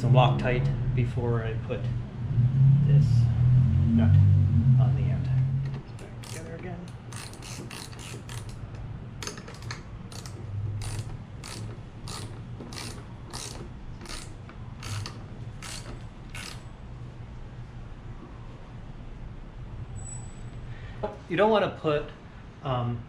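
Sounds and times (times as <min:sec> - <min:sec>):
ratchet wrench clicking: 0:06.0 - 0:16.7.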